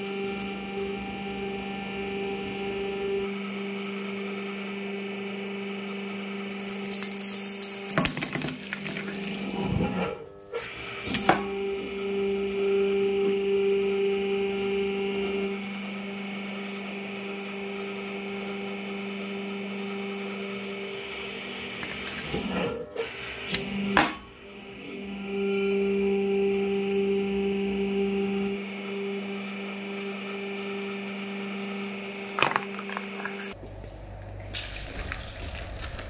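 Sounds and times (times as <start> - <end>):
electric pump motor humming: 0.0 - 33.6
beetroots cracking and crunching: 6.4 - 9.6.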